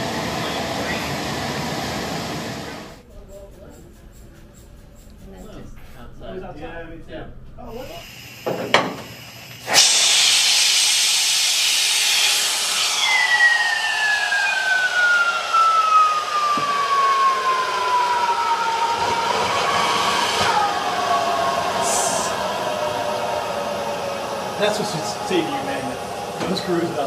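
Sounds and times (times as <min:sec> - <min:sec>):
loud gas hiss: 0:08.0 - 0:14.1
whistling tone sliding down: 0:09.7 - 0:27.0.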